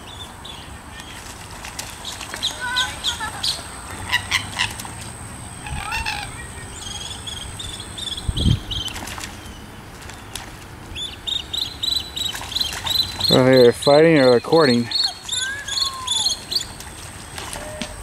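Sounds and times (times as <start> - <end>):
water splashing: 0.8 - 18.0
sharp clucking bird calls: 2.0 - 18.0
wings flapping: 12.2 - 13.4, 14.9 - 18.0.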